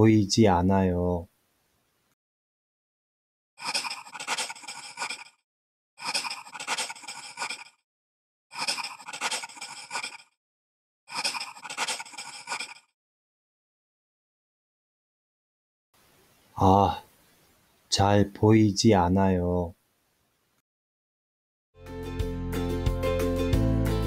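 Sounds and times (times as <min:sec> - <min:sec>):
pencil scratching on paper: 0:03.6 - 0:05.4, 0:06.0 - 0:07.8, 0:08.6 - 0:10.3, 0:11.1 - 0:12.9.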